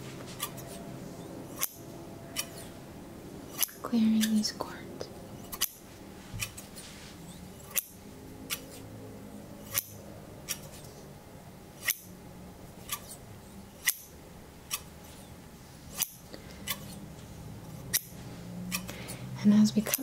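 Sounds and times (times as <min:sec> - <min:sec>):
shears snipping: 0:00.0 - 0:02.8, 0:03.5 - 0:04.6, 0:05.4 - 0:08.9, 0:09.6 - 0:11.0, 0:12.8 - 0:13.2, 0:13.8 - 0:14.1, 0:15.9 - 0:17.0, 0:17.7 - 0:19.2, 0:19.8 - 0:20.0.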